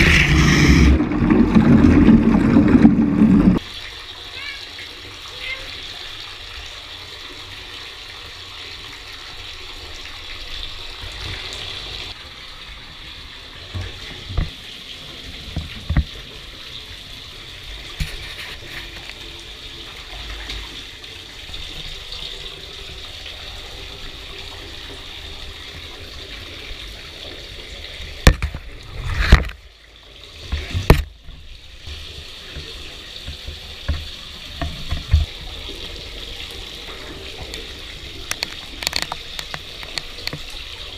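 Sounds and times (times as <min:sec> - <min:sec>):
knocks and thumps: 0:00.0 - 0:03.6
shower spray into bathtub: 0:00.0 - 0:03.6.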